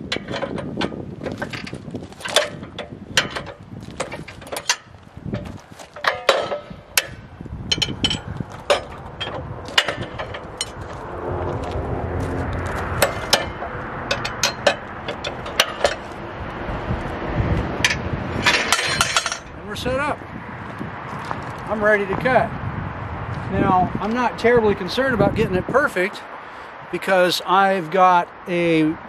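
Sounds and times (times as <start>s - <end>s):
metal jacks cranked by hand: 0.0s - 10.8s, 13.0s - 16.2s, 17.8s - 19.6s
steady rushing noise: 0.0s - 29.0s.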